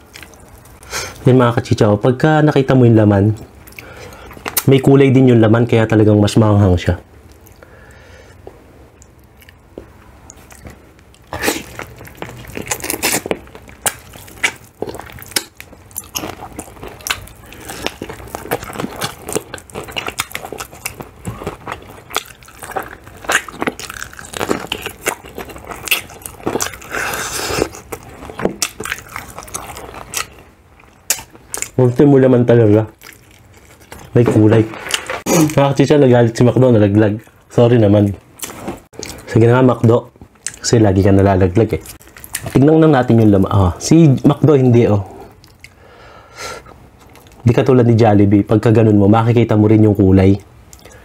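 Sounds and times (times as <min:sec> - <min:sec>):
wet chewing: 0:00.0 - 0:01.2, 0:08.4 - 0:31.8, 0:32.9 - 0:35.6, 0:41.7 - 0:42.6
crunching fried crust: 0:09.4 - 0:36.4.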